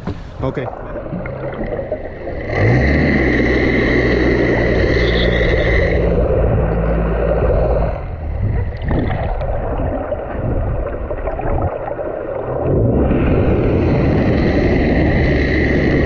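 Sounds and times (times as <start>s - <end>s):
knocks: 0.0s - 0.4s
boat engine running: 0.0s - 16.0s
water sloshing against hull: 0.0s - 16.0s.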